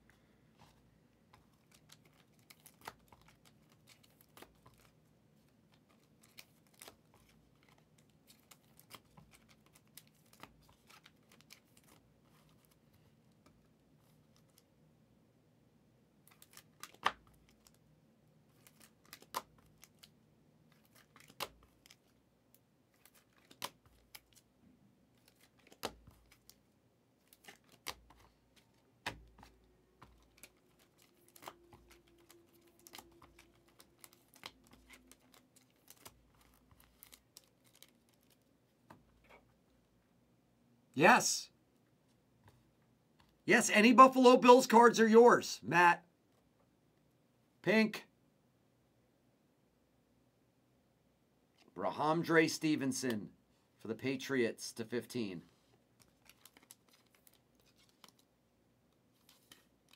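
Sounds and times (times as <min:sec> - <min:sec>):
trading cards rustling: 0:01.4 - 0:13.0, 0:18.5 - 0:20.1, 0:20.7 - 0:22.2, 0:22.9 - 0:24.5, 0:25.1 - 0:39.5, 0:56.0 - 0:58.3, 0:59.1 - 0:59.9.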